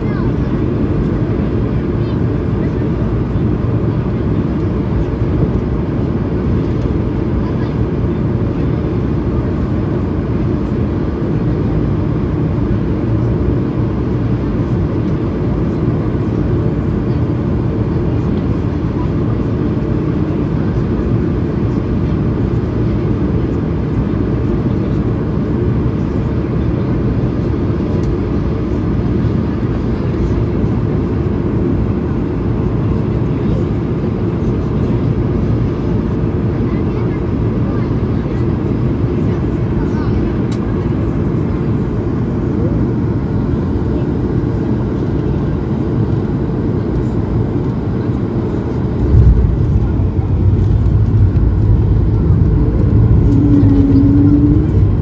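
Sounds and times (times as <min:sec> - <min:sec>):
jet engine rumble in cabin: 0:00.0 - 0:55.0
airflow: 0:45.7 - 0:55.0.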